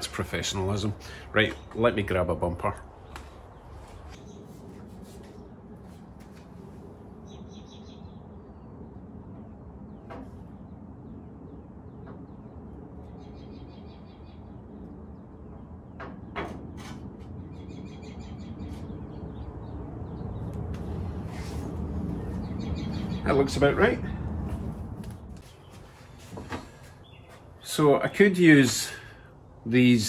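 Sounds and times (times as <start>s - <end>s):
low outdoor rumble: 0.0s - 30.0s
songbird chirping: 6.9s - 16.4s, 17.3s - 24.2s, 25.1s - 29.8s.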